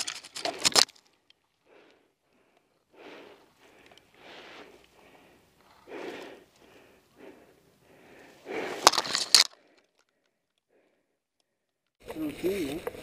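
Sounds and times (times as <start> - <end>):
breathing close to microphone: 1.6 - 11.1
clothing and dry grass rustling: 2.7 - 9.5.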